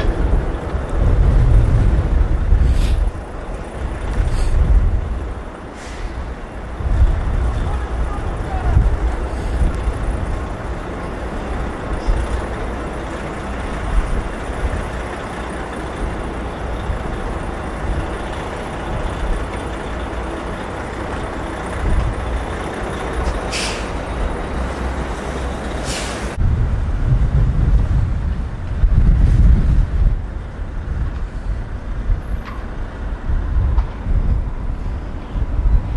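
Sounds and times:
city traffic noise: 0.0 - 35.9
wind rumbling on microphone: 0.0 - 35.9
short hisses: 5.7 - 6.2, 23.5 - 24.0, 25.8 - 26.4.

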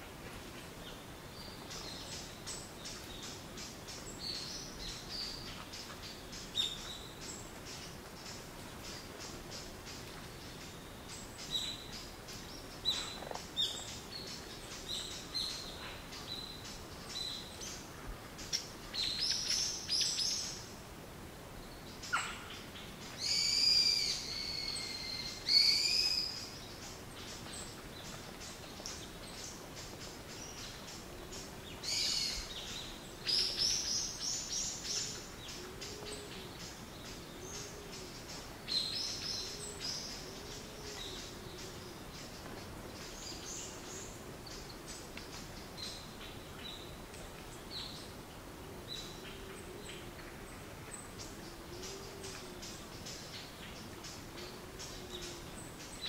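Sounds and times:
low hoots: 48.6 - 52.9.

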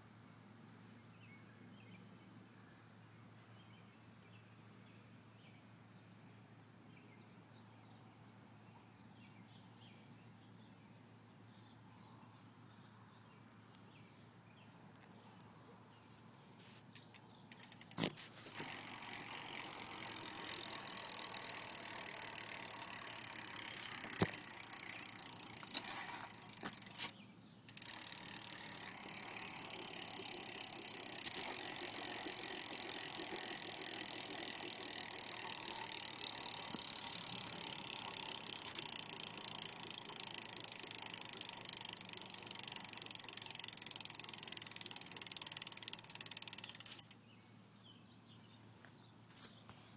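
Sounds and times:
bike freewheel hub ratcheting: 17.0 - 47.2.

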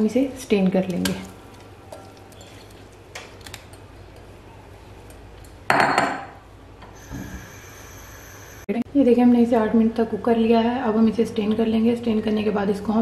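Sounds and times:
pot and utensils clattering: 0.9 - 4.4.

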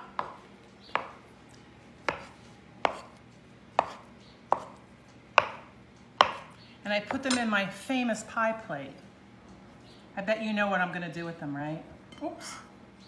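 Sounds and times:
knife chopping on plastic board: 0.0 - 1.2, 2.0 - 4.8, 5.4 - 6.5.

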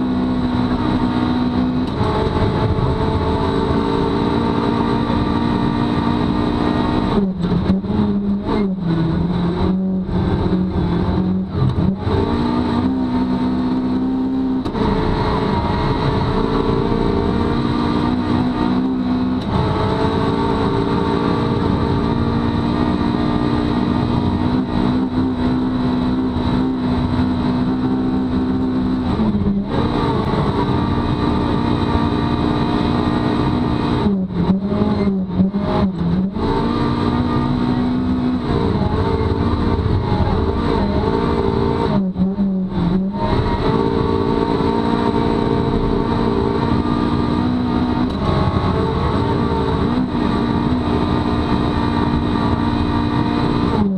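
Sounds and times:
rally car engine at high revs: 0.0 - 53.9.

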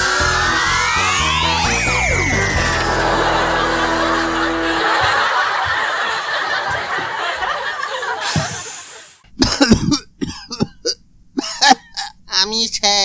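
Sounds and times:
crowd laughing: 0.4 - 9.2.

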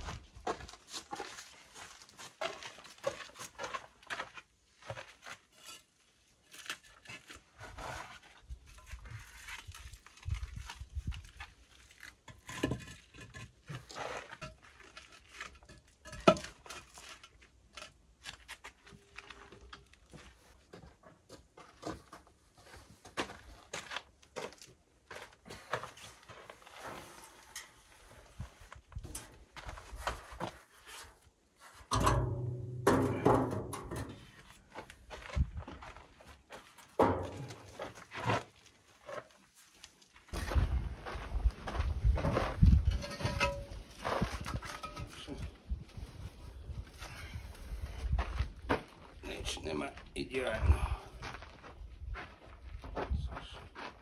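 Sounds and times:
footsteps on dirt: 0.0 - 5.5, 34.3 - 45.0, 45.7 - 54.0
concrete blocks clunking: 12.1 - 18.0, 31.9 - 34.5, 42.6 - 45.6.

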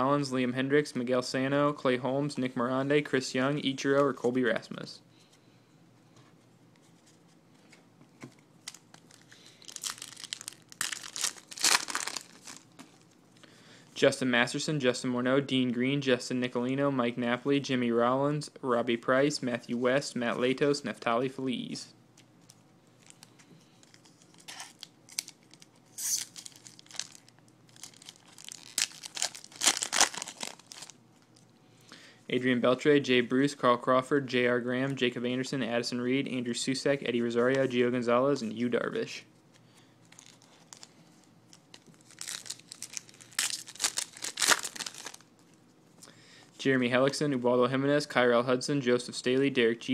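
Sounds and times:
foil wrapper crinkling: 8.6 - 13.2, 23.0 - 31.4, 40.0 - 45.3.

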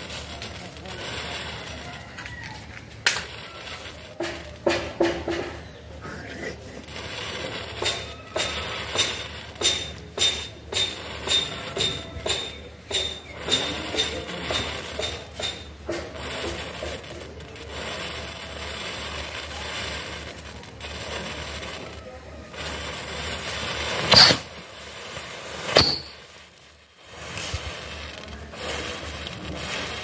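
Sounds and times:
matchsticks igniting and crackling: 0.0 - 30.0
sharp pops: 2.8 - 5.8, 6.9 - 17.8, 23.4 - 30.0.

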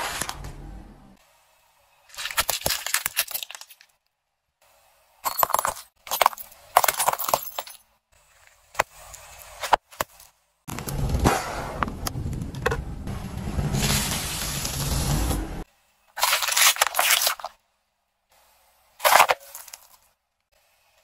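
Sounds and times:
objects crunching under car tyre: 16.2 - 17.6, 19.0 - 20.1.

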